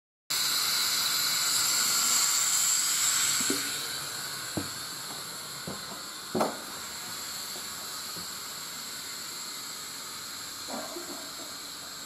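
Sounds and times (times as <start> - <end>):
steady hiss: 0.3 - 12.0
footsteps on wooden floor: 4.6 - 6.7.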